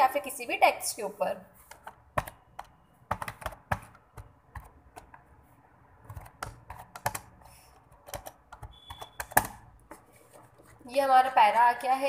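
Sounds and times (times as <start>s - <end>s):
keyboard keys clicking: 1.7s - 5.2s, 6.0s - 9.6s.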